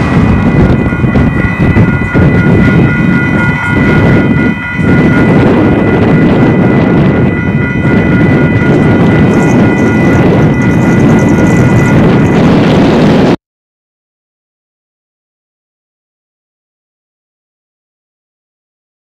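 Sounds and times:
faint high tones: 0.0s - 12.7s
wind buffeting microphone: 0.0s - 13.4s.

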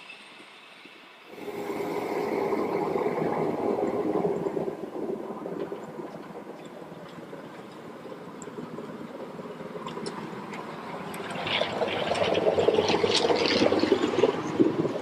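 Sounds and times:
miniature train rumbling on track: 0.0s - 15.0s.

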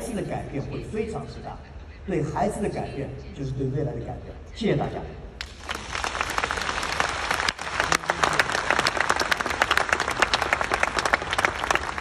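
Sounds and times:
large audience applauding: 5.4s - 12.0s.

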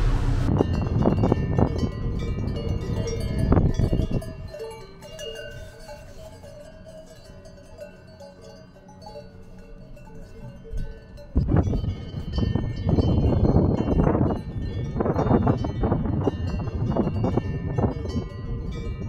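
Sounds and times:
wind rumble: 0.0s - 4.6s, 10.7s - 19.0s
cowbells ringing: 0.0s - 19.0s.

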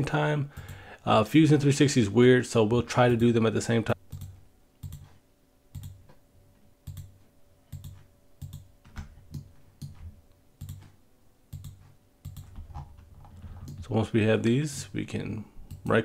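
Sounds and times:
faint steady hum: 0.0s - 16.0s
computer mouse clicking: 4.1s - 6.2s, 6.8s - 13.8s.

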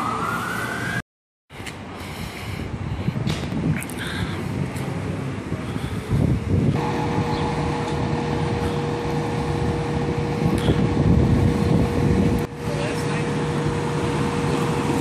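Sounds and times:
diesel engine running: 1.8s - 15.0s
steady whining tone: 6.7s - 15.0s.

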